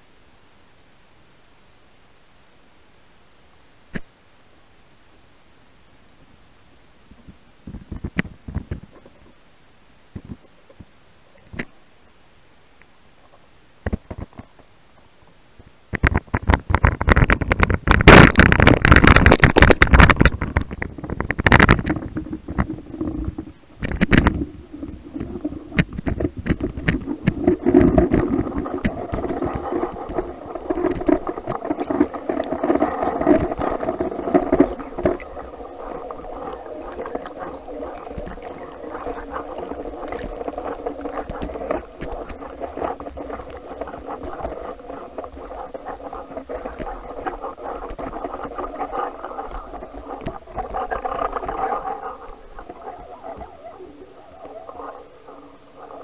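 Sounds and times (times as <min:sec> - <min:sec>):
muffled underwater rumble: 0:16.0 - 0:56.0.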